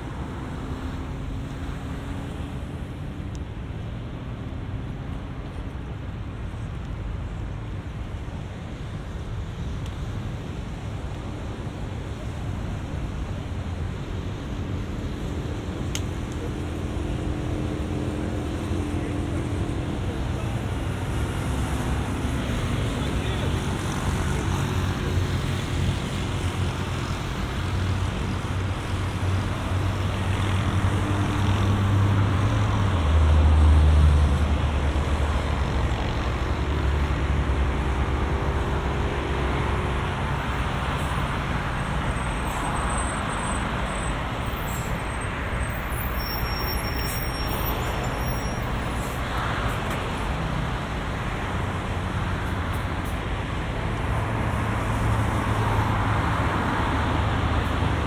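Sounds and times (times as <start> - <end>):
traffic road noise: 0.0 - 58.0.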